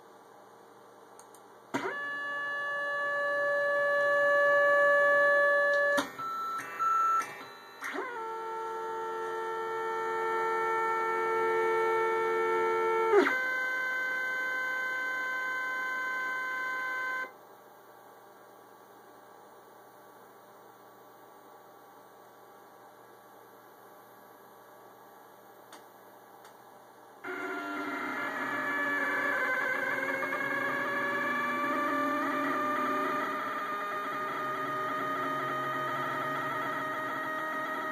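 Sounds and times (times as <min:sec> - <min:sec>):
stepper motors whining: 0:27.2 - 0:37.9.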